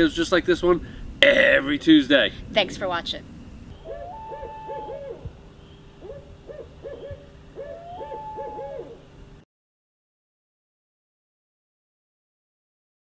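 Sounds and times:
owl hooting: 3.7s - 9.2s.

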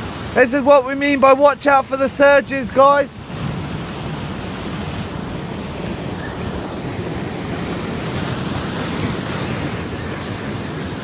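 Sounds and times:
sea surf over rocks: 0.0s - 11.0s
wind buffeting microphone: 3.1s - 11.0s.

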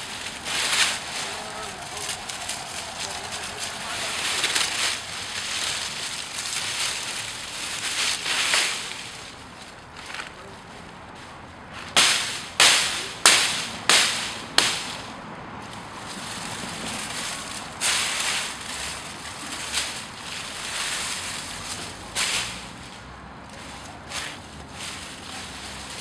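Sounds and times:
hatchet chopping branch: 11.9s - 15.0s.

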